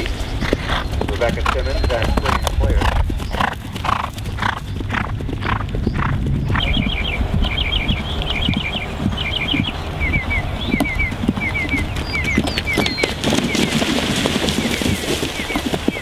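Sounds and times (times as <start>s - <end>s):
horse breathing hard: 0.0s - 6.6s
bird chirping: 0.0s - 16.0s
horse hoofbeats on turf: 0.0s - 16.0s.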